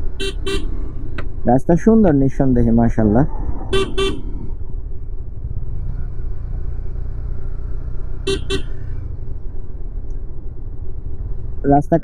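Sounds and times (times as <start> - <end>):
motorcycle engine: 0.0 - 1.4, 3.3 - 11.7
wind rumble: 0.0 - 12.0
horn toots: 0.2 - 1.0, 3.7 - 4.5, 8.2 - 9.0.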